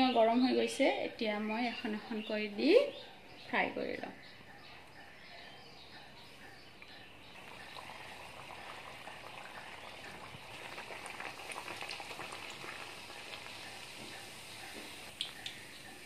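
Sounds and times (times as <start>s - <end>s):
bread deep-frying in oil: 7.3s - 16.0s.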